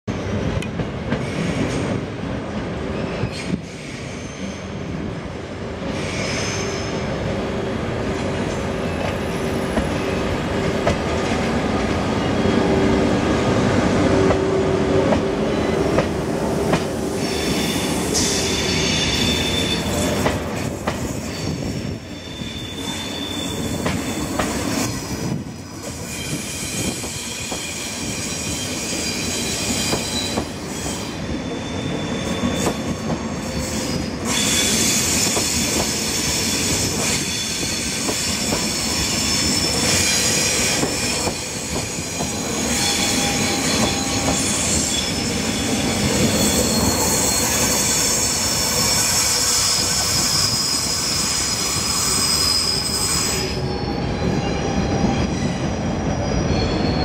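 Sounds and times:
high-speed train passing: 0.1s - 57.0s
train wheels squealing: 1.2s - 2.0s, 3.0s - 4.9s, 5.8s - 7.1s, 17.0s - 57.0s.

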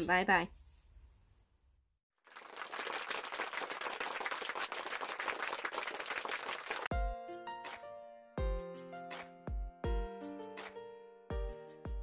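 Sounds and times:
crowd applause: 2.3s - 6.9s.

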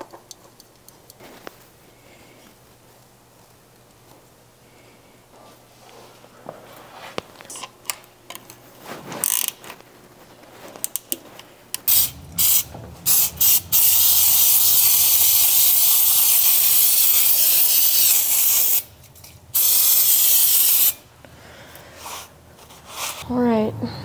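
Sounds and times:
aerosol can spraying: 11.9s - 18.9s, 19.5s - 21.0s.

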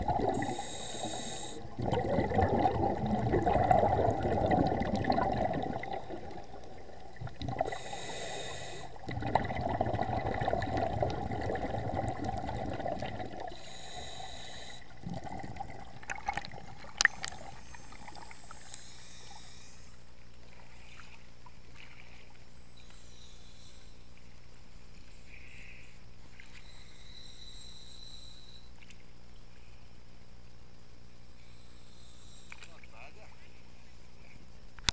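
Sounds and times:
underwater bubbles gurgling: 0.0s - 19.4s
steady hiss: 0.0s - 34.9s.

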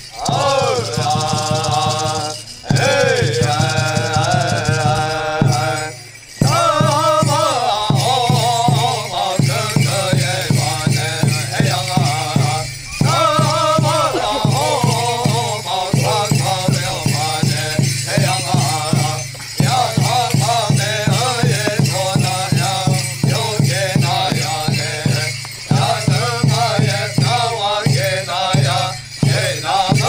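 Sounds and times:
men chanting: 0.0s - 30.0s
rattles and bells jingling: 0.0s - 30.0s
hand drum beat: 0.2s - 30.0s.

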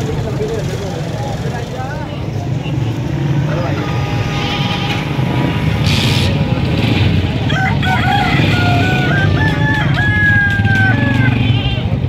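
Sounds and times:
crowd and traffic rumble: 0.0s - 12.0s
rooster crowing: 7.4s - 11.4s.

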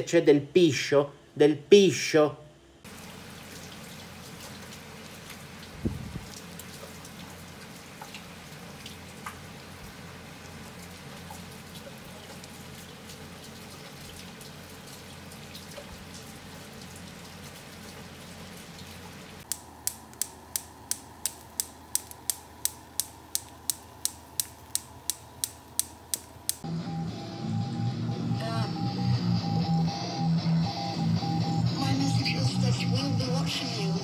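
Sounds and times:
sharp clicking: 19.4s - 26.7s.

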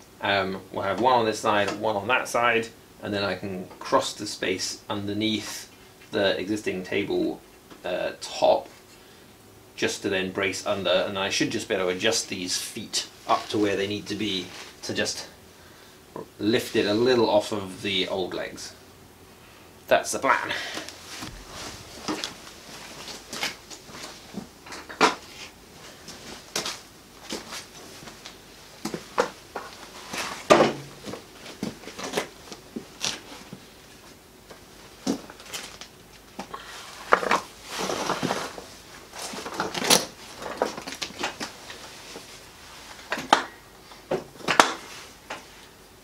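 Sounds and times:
wood scraping: 36.6s - 43.4s.

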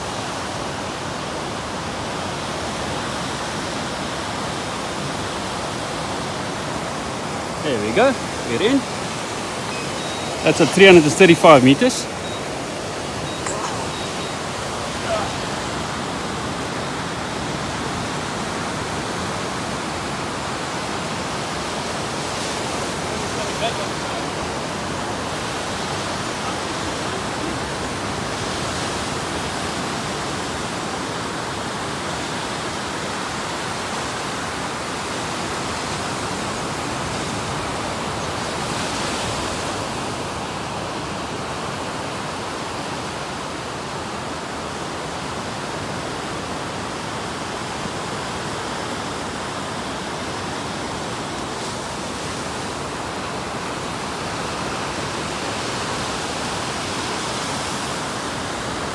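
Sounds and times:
surf breaking on beach: 1.9s - 31.7s.

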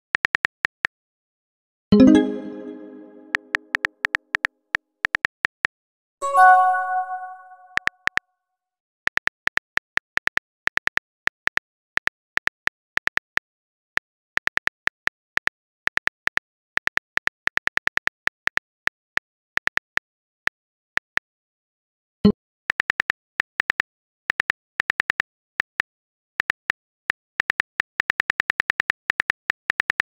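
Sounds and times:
message chime: 2.0s - 3.7s, 6.2s - 7.9s.

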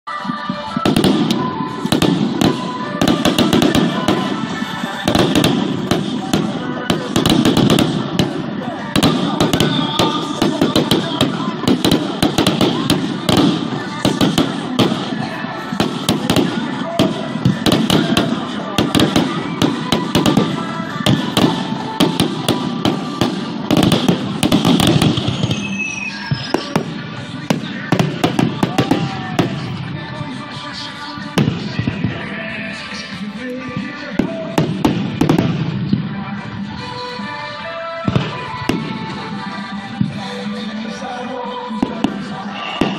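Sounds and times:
fireworks bursting: 0.1s - 42.9s
steady background din: 0.1s - 42.9s.

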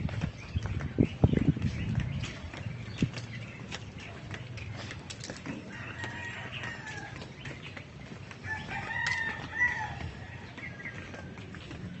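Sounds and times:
footsteps on paved path: 0.0s - 12.0s
rooster crowing: 5.7s - 7.2s, 8.4s - 10.3s.

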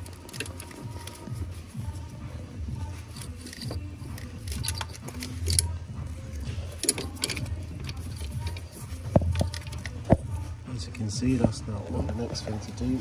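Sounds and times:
tools clicking on engine parts: 0.0s - 1.4s, 3.0s - 10.3s.

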